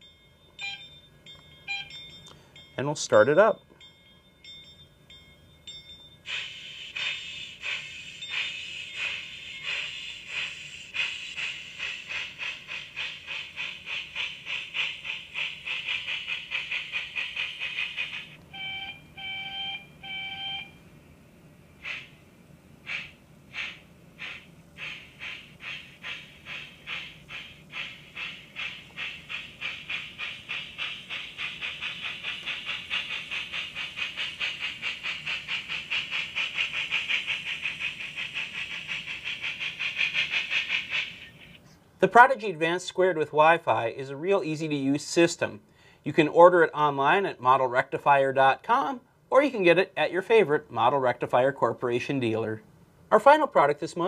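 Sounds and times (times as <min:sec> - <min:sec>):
model steam engine chuffing: 0:06.2 - 0:20.7, 0:21.8 - 0:22.2, 0:22.8 - 0:43.9
short whistle toots: 0:06.3 - 0:12.1.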